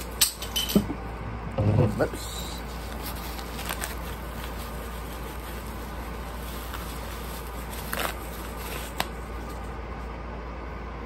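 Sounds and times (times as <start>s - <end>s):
bubble wrap crinkling: 2.2s - 9.8s.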